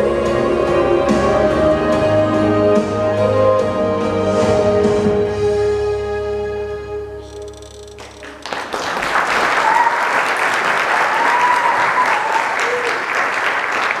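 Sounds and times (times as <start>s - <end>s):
audience applause: 8.2s - 14.0s
voices cheering: 9.4s - 13.2s.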